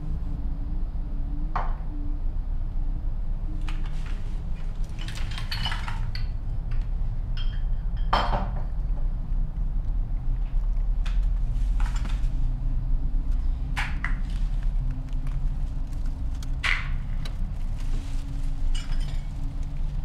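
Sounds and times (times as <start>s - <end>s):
steady low hum: 0.0s - 20.0s
glass bottles clinking: 5.0s - 6.4s, 7.4s - 8.7s.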